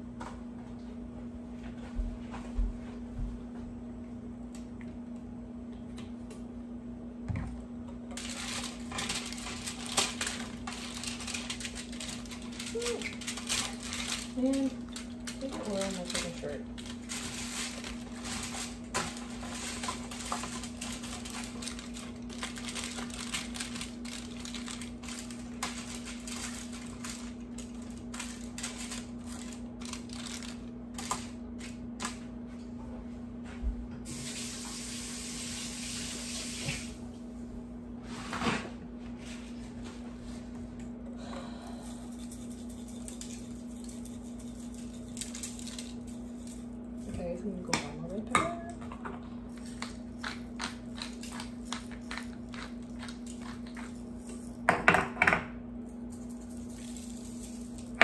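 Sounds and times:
steady low hum: 0:00.0 - 0:58.0
aluminium foil crinkling: 0:08.0 - 0:32.3, 0:41.5 - 0:48.8, 0:49.4 - 0:54.7, 0:56.1 - 0:58.0.

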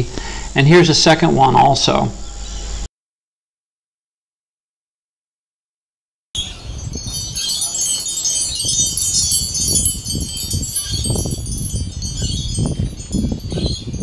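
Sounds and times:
wind chimes tinkling: 0:06.4 - 0:14.0.

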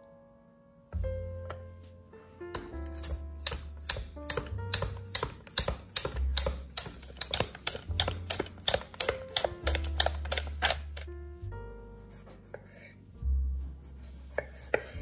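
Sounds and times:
background music: 0:00.0 - 0:15.0
potatoes sliced on mandoline: 0:02.6 - 0:11.1.

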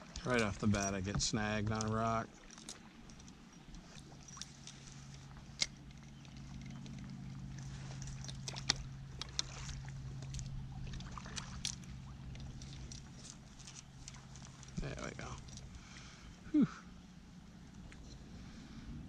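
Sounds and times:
sharp knocks and splashes: 0:00.0 - 0:14.8
steady low hum: 0:00.0 - 0:19.0
water sloshing around kayak: 0:00.0 - 0:19.0.

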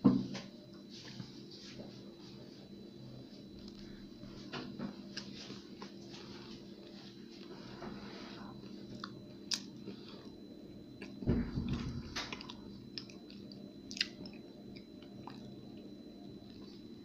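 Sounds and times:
faint steady hum: 0:00.0 - 0:17.0
person chewing: 0:08.9 - 0:10.3, 0:11.0 - 0:16.8.

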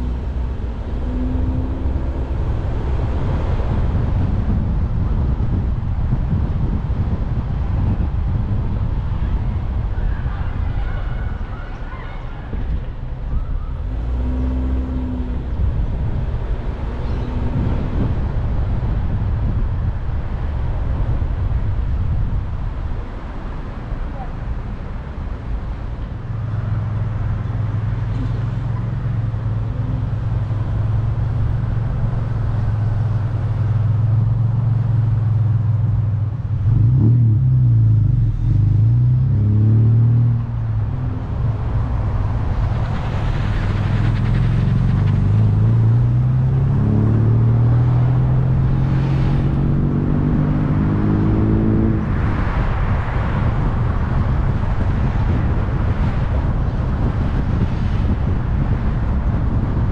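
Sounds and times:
car engine hum: 0:00.0 - 0:59.9
road noise: 0:00.0 - 0:59.9.

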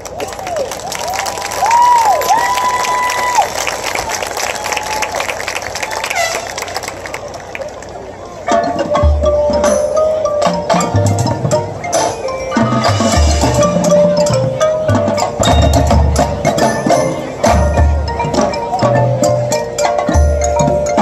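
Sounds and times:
marching band playing: 0:00.8 - 0:07.5, 0:08.4 - 0:21.0
mallet keyboards: 0:08.2 - 0:21.0
sharp percussion strokes: 0:08.5 - 0:21.0.

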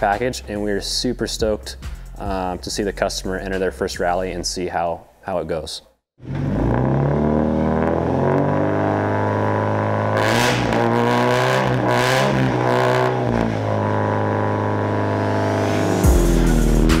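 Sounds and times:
car engine idling and revving: 0:06.2 - 0:17.0.

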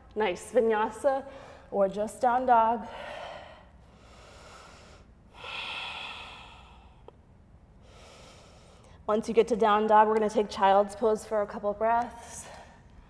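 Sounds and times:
woman breathing heavily: 0:01.2 - 0:01.8, 0:02.7 - 0:09.1.

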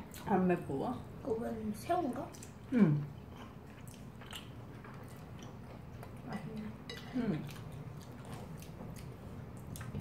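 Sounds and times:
chewing and slurping noodles: 0:02.4 - 0:10.0.

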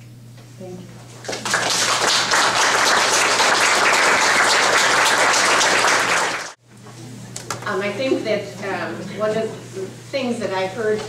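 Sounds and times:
audience applauding: 0:01.2 - 0:06.6.

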